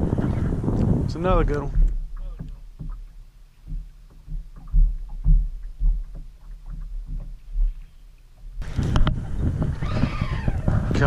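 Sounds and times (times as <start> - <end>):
water lapping against boat hull: 0.0 - 11.0.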